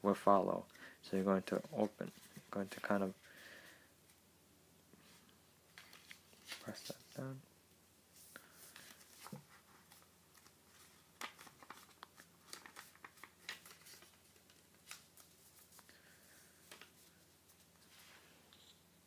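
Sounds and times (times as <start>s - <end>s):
crisp clicks of paper folds: 5.7s - 7.2s, 8.4s - 16.0s, 16.6s - 17.9s
paper rustling and crackling: 5.7s - 7.2s, 8.4s - 18.2s.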